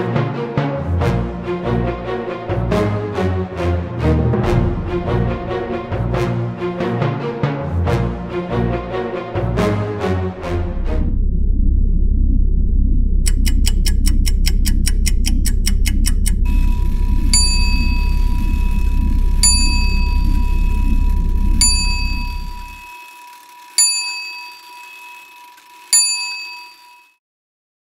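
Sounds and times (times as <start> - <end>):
low drone: 1.3 - 23.6
quick even ticking: 13.2 - 26.1
high bell strikes: 17.3 - 18.5, 19.4 - 20.8, 21.6 - 23.2, 23.8 - 27.2.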